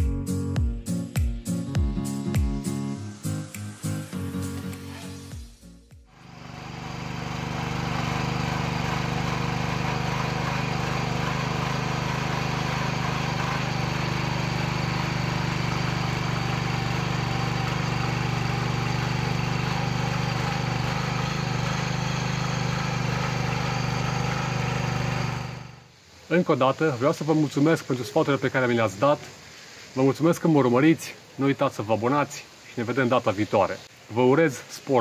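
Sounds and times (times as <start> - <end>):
tiller engine running: 6.2 - 25.9.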